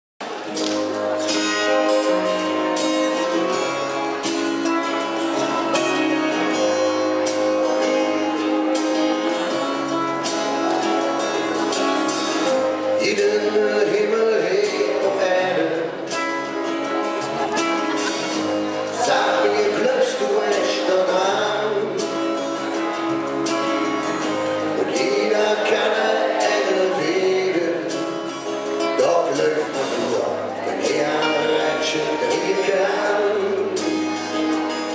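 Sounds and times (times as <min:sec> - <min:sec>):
acoustic guitars: 0:00.2 - 0:34.9
drums: 0:00.2 - 0:34.9
man singing: 0:12.4 - 0:16.4, 0:18.4 - 0:23.0, 0:24.2 - 0:34.9.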